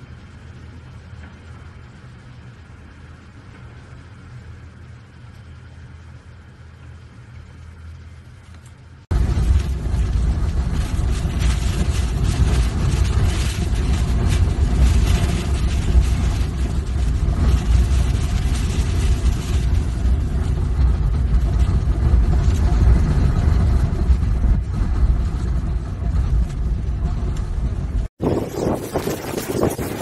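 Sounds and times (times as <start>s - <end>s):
driving rain: 9.1s - 30.0s
wind buffeting microphone: 9.1s - 30.0s.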